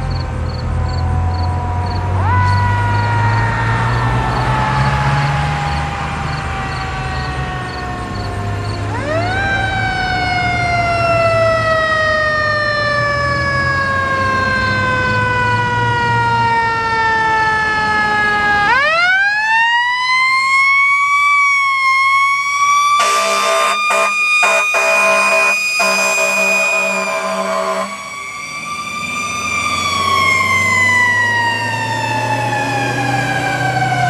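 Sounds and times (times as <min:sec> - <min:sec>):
mechanical siren wailing: 0:00.8 - 0:34.0
air horn blasts: 0:23.0 - 0:28.4.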